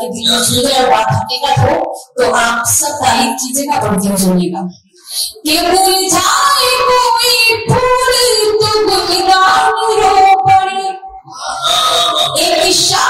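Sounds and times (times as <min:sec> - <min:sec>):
woman singing into a microphone: 0:05.4 - 0:11.0.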